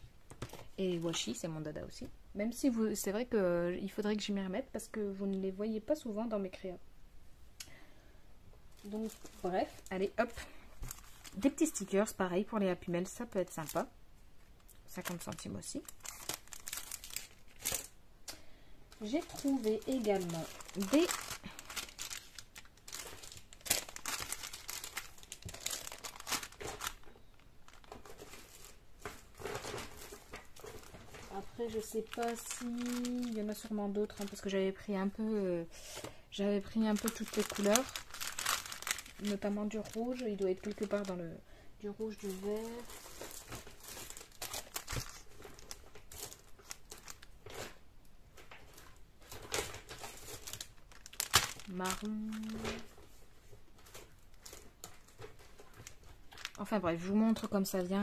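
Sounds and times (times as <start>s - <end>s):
plastic packets crinkling: 8.7s - 12.0s, 13.1s - 13.9s, 14.6s - 35.2s, 35.9s - 41.3s, 41.9s - 47.8s, 48.4s - 58.0s.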